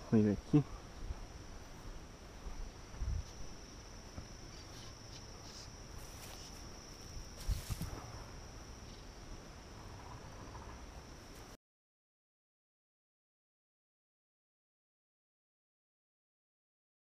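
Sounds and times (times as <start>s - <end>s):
insects trilling: 0.0s - 11.6s.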